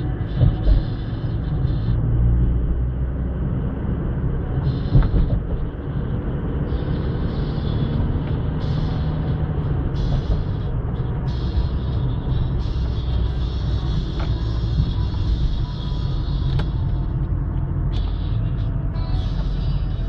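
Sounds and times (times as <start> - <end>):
car engine and tyre rumble: 0.0 - 20.0
music playing: 6.7 - 20.0.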